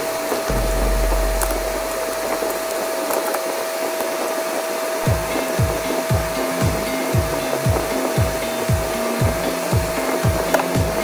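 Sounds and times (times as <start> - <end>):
kick drum beat: 0.5 - 2.7, 5.1 - 11.0.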